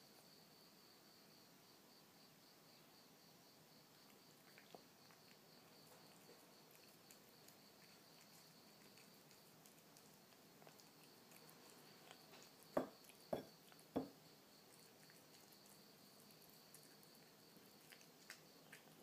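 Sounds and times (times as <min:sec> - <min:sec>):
kitten licking and chewing: 0:03.7 - 0:19.0
dish knocking on wooden floor: 0:12.8 - 0:14.2.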